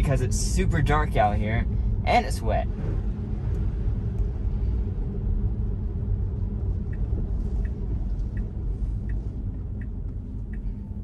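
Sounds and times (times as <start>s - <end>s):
road rumble and tyre noise: 0.0s - 11.0s
turn signal ticking: 5.9s - 11.0s.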